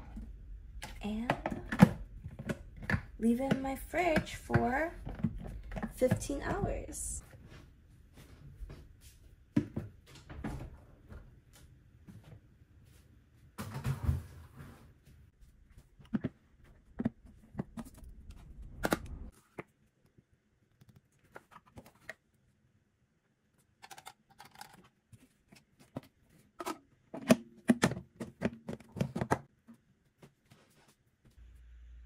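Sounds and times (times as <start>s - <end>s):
low hum: 31.4s - 32.0s.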